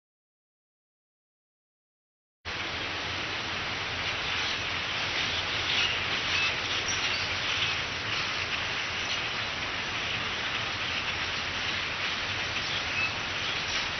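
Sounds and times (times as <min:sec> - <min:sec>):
starlings chattering: 0:04.2 - 0:13.9.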